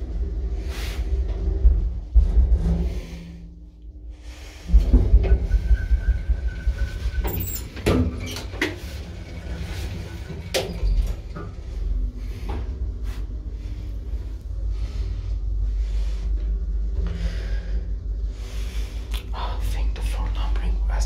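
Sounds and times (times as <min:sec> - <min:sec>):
lift machinery low rumble: 0:00.0 - 0:21.0
elevator doors clunking and clicking: 0:04.6 - 0:13.7.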